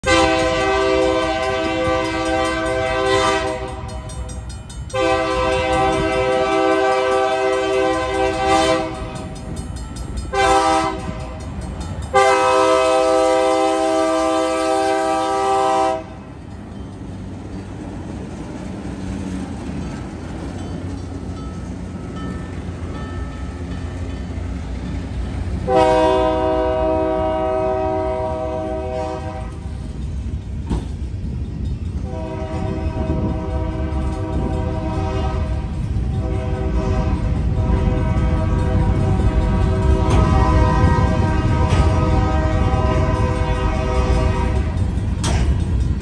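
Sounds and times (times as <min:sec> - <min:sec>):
locomotive horn blasts: 0:00.0 - 0:04.2, 0:04.9 - 0:09.4, 0:10.3 - 0:11.5, 0:12.1 - 0:16.3, 0:25.6 - 0:29.8, 0:32.0 - 0:44.9.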